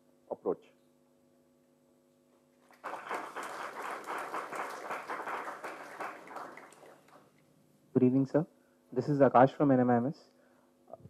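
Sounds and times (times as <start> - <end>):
audience applauding: 2.6 - 7.3.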